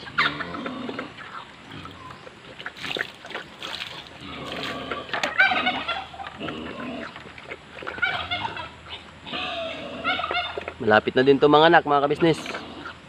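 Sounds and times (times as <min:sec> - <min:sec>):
pig chomping and slurping: 0:00.0 - 0:10.8
poultry calling: 0:04.2 - 0:10.8.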